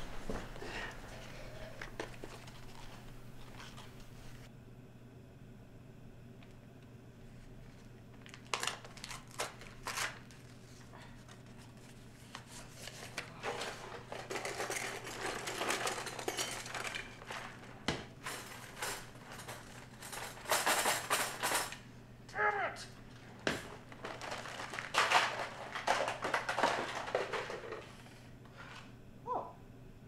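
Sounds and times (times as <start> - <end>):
paper rustling and crinkling: 0.0 - 4.5, 7.4 - 20.8, 23.2 - 28.0.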